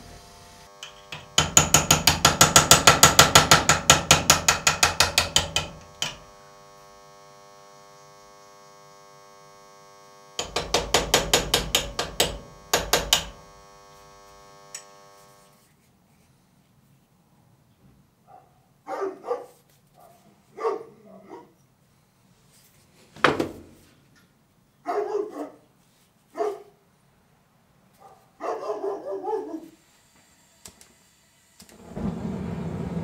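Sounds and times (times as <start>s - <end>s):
steady held tone: 0.0s - 1.8s, 5.6s - 15.6s
hammer tapping chisel on steel: 0.8s - 6.3s, 10.4s - 13.4s
dog barking: 18.2s - 21.6s, 24.8s - 25.6s, 26.3s - 26.8s, 28.0s - 29.8s.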